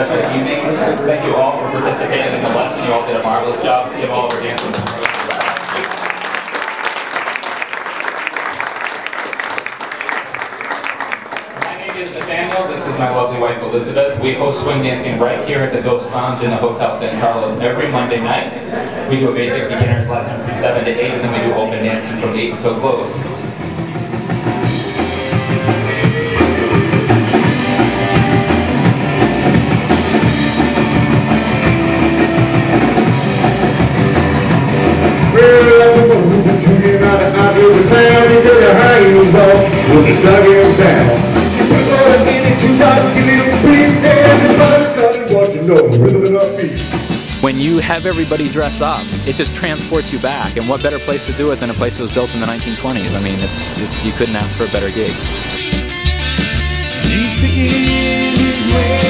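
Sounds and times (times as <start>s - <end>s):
crowd applauding: 4.2s - 13.2s
guitar: 21.2s - 59.0s
band music: 21.3s - 59.0s
drum kit beat: 23.4s - 45.0s, 46.7s - 59.0s.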